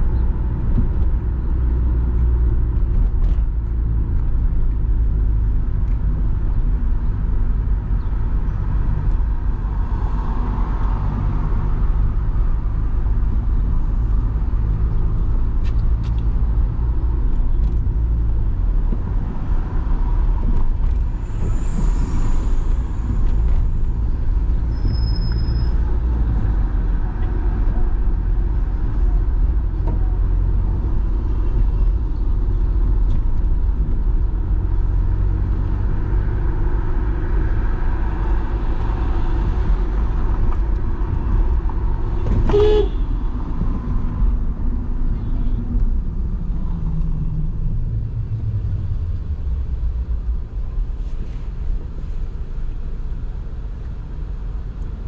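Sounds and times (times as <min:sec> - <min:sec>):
traffic engine and tyre rumble: 0:00.0 - 0:55.0
car horn beep: 0:42.4 - 0:43.1.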